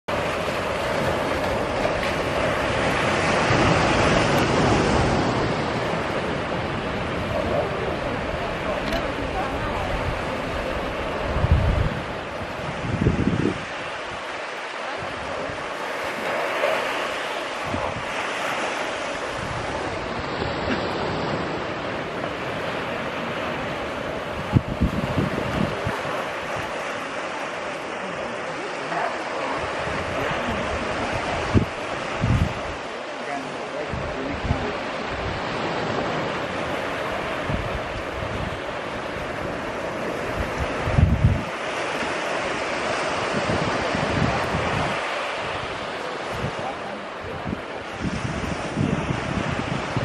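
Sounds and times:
wind rumbling on microphone: 0.1 - 33.0, 33.8 - 50.0
ocean surf breaking: 0.1 - 50.0.

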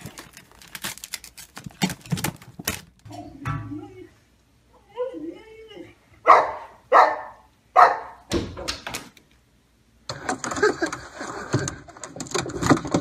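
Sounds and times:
dog barking: 6.2 - 8.3.

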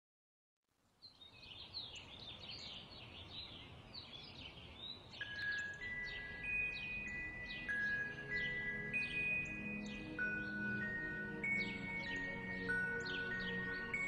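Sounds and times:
birds chirping: 1.0 - 14.0
chime-like music notes: 5.2 - 14.0.

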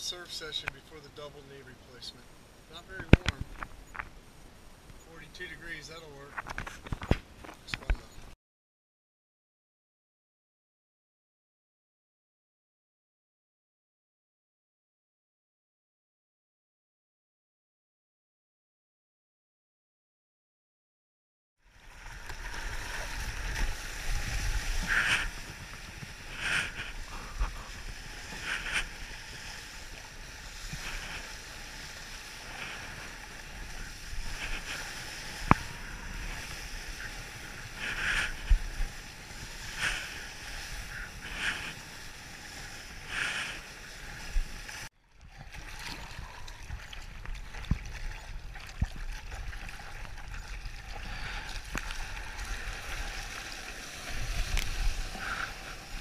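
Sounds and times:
water splashing against surfboard: 21.8 - 56.0
wind on microphone: 22.0 - 53.4, 54.0 - 56.0.

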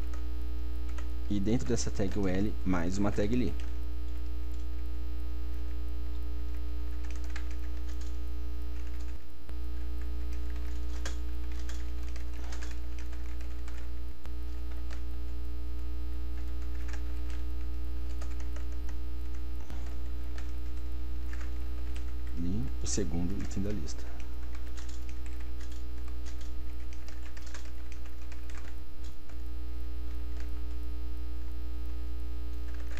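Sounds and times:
electrical mains hum: 0.0 - 32.9
keyboard typing: 0.9 - 2.4, 3.0 - 4.8, 6.5 - 9.2, 9.8 - 15.2, 16.4 - 29.4, 30.1 - 30.8, 32.5 - 32.9.

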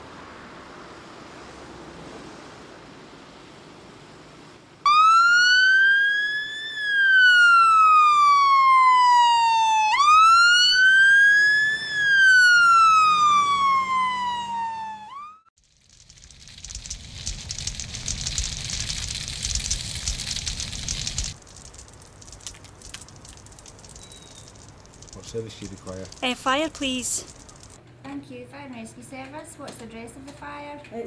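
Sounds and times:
fire engine siren wailing: 4.8 - 15.5
faint steady rumble: 15.6 - 31.0.

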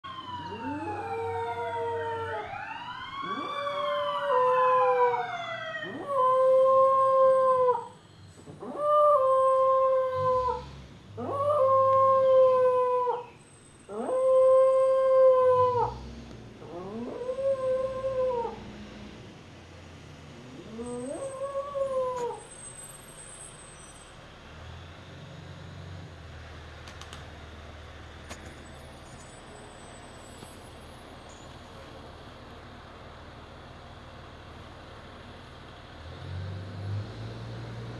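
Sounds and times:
siren wailing: 0.0 - 8.0, 8.6 - 18.7
dog howling: 0.4 - 2.6, 3.2 - 7.9, 8.6 - 13.3, 13.9 - 16.0, 16.6 - 18.6, 20.5 - 22.4.

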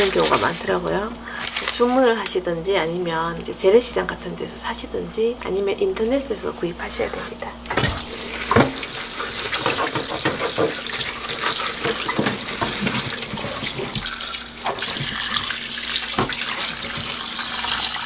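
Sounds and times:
faucet running into sink: 7.8 - 18.0
hands rubbing and rinsing duck: 8.1 - 18.0.

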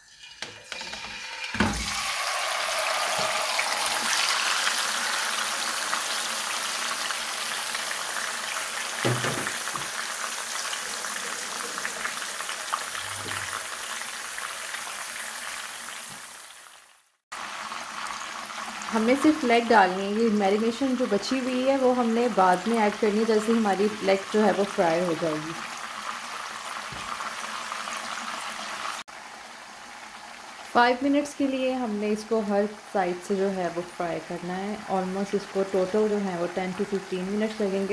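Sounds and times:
meat sizzling in hot oil: 0.0 - 33.0
meat thumping into pan: 9.0 - 10.0.

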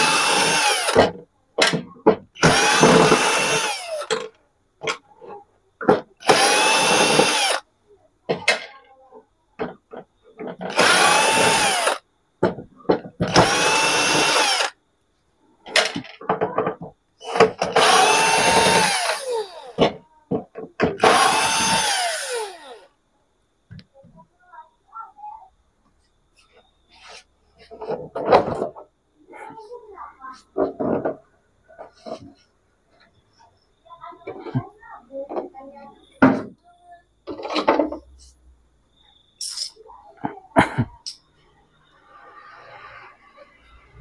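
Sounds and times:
electric screwdriver whirring: 0.0 - 1.0, 2.4 - 4.1, 6.2 - 7.6, 10.7 - 12.0, 13.3 - 14.8, 17.7 - 19.8, 21.0 - 22.9.

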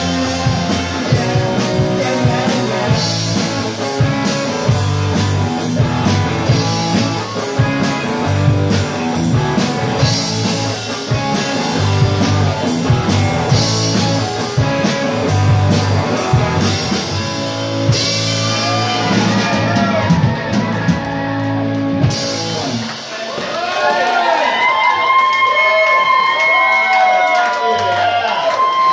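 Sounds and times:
electric bass: 0.0 - 23.1
drum kit beat: 0.0 - 23.8
electric guitar: 0.0 - 24.0.

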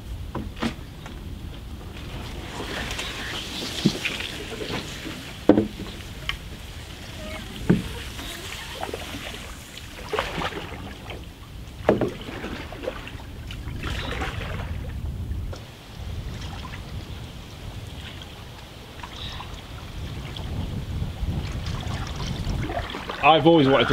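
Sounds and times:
paddles knocking on canoe hulls: 0.3 - 14.8
paddles splashing in water: 1.6 - 23.9.

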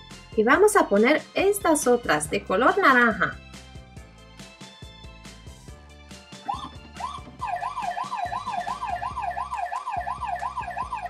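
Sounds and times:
background music: 0.0 - 11.0
electronic toy siren: 6.4 - 11.0.

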